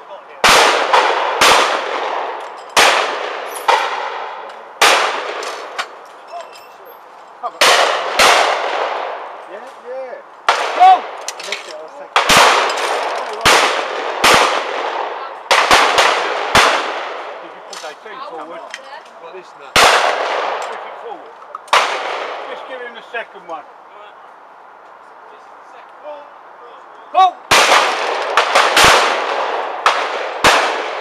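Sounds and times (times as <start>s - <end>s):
shotgun shots with echo: 0.4s - 5.8s, 7.6s - 9.3s, 12.1s - 17.4s, 19.8s - 21.0s, 21.7s - 22.6s, 27.5s - 31.0s.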